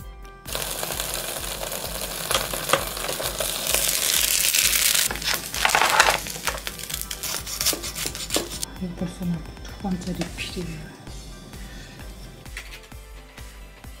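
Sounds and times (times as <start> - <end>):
sandwich sizzling in contact grill: 0.4 - 8.7
scraping: 1.6 - 8.7.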